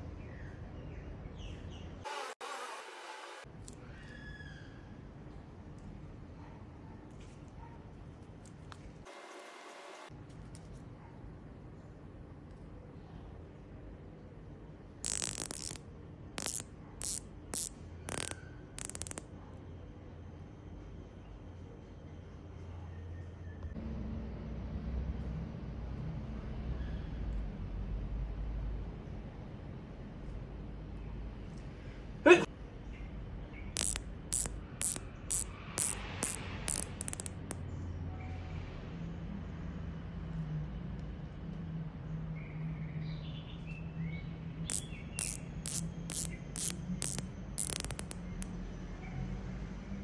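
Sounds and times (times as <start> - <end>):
watch bezel ratchet clicks: 15.0 - 15.8, 16.4 - 19.2, 33.8 - 37.6, 44.7 - 48.5.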